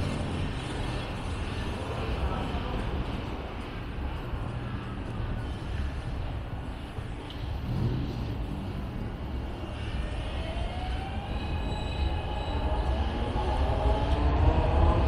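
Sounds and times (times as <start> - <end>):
elevated train rumble: 0.0 - 15.0
train whine rising in pitch: 9.4 - 15.0.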